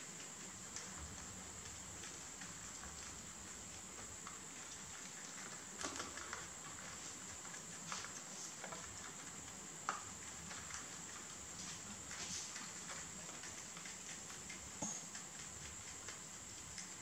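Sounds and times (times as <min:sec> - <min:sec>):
rabbits munching leaves: 0:00.0 - 0:17.0
steady hiss: 0:00.0 - 0:17.0.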